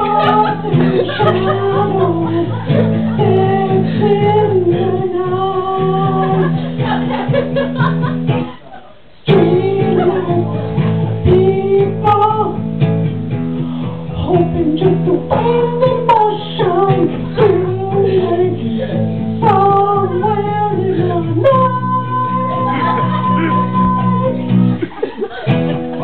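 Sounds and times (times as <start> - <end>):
acoustic guitar strumming: 0.0 - 8.6, 9.3 - 26.0
man singing a ballad: 14.1 - 24.3.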